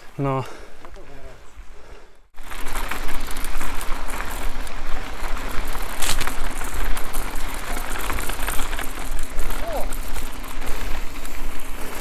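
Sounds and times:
bike rattling and clicking: 0:02.4 - 0:12.0
tyres rumbling on dirt: 0:02.4 - 0:12.0.

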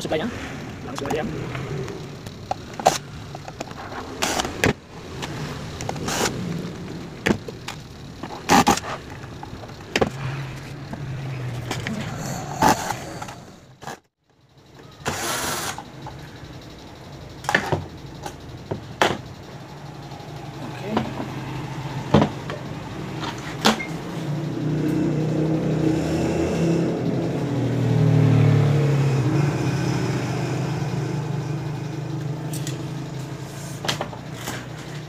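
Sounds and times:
screws and metal parts clicking: 0:31.0 - 0:35.0.

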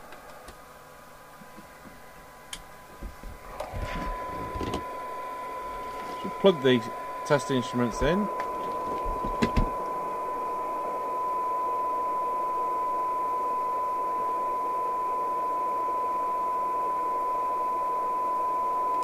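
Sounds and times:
radio hiss: 0:03.4 - 0:11.0
radio test tone: 0:03.4 - 0:19.0.

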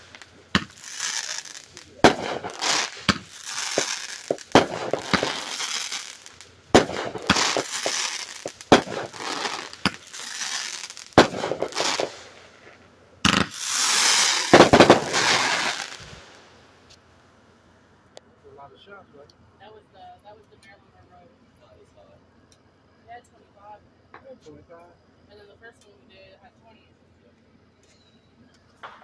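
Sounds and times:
firework bangs: 0:00.0 - 0:16.9
firework hiss and crackle: 0:00.0 - 0:17.0.

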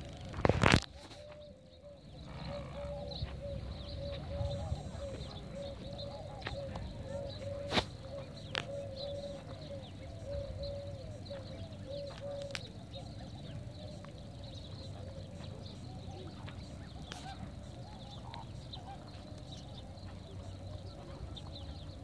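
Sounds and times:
water birds honking: 0:16.2 - 0:21.6.

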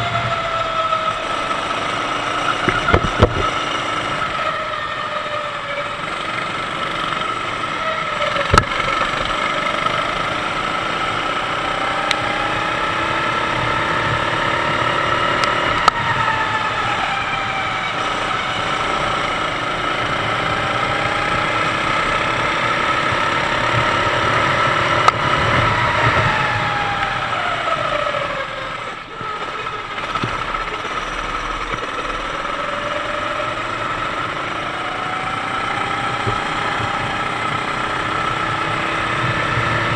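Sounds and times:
kart engine racing: 0:00.0 - 0:39.9
sharp knocks: 0:02.6 - 0:03.5.

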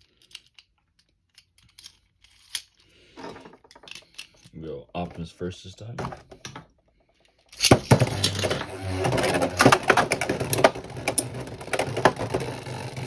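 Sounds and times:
small plastic clicks: 0:00.0 - 0:02.7
spinning tops clattering together: 0:07.5 - 0:08.5.

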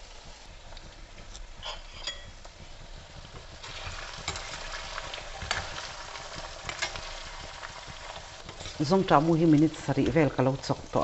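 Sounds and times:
seeds and garlic sizzling: 0:00.0 - 0:11.0
metal spoon stirring seeds: 0:03.7 - 0:10.3.

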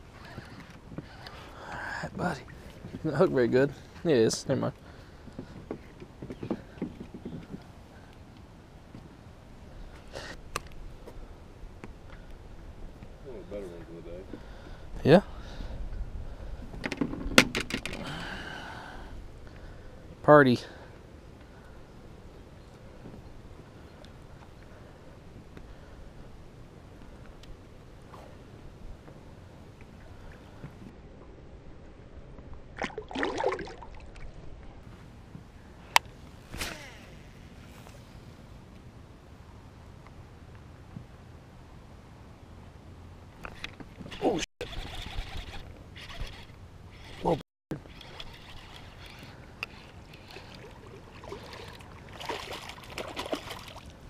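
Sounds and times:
fish splashing into water: 0:32.8 - 0:34.3, 0:50.4 - 0:53.9.

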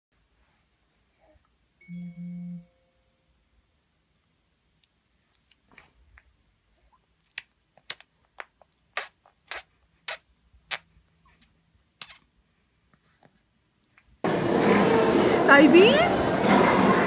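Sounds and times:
baby's mouth smacking: 0:07.2 - 0:10.9, 0:12.0 - 0:12.3.

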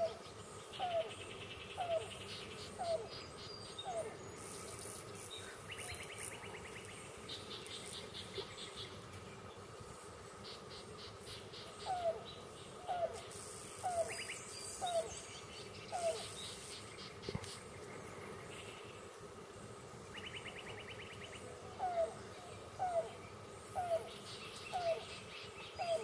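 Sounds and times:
cuckoo cooing: 0:00.8 - 0:01.2, 0:01.8 - 0:04.2, 0:11.8 - 0:15.2, 0:15.9 - 0:16.4, 0:21.6 - 0:23.2, 0:23.8 - 0:26.0.

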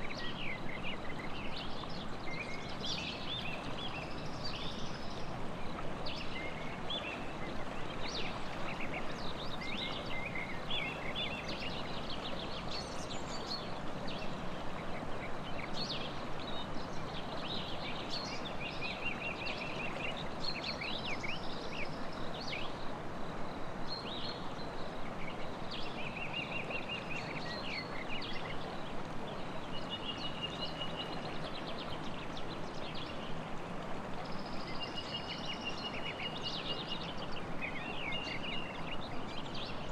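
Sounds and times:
river rushing: 0:00.0 - 0:39.9
songbirds singing and chirping: 0:00.0 - 0:39.9.

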